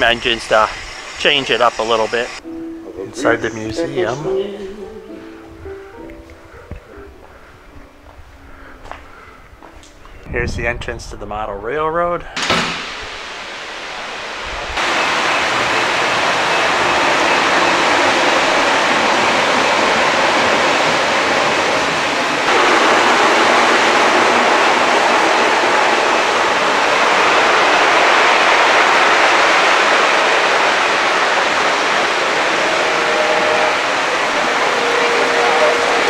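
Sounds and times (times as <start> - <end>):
model trains rumbling on track: 13.2 - 36.0.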